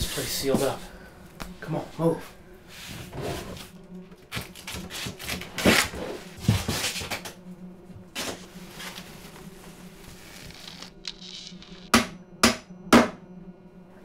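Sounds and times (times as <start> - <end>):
furniture bumping and scraping: 2.8 - 3.7, 4.9 - 7.4, 8.0 - 10.7.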